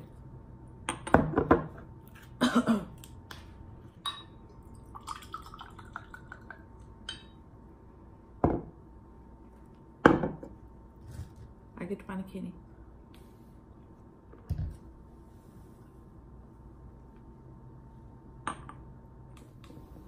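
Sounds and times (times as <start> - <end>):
liquid gurgling into a glass: 4.6 - 6.6.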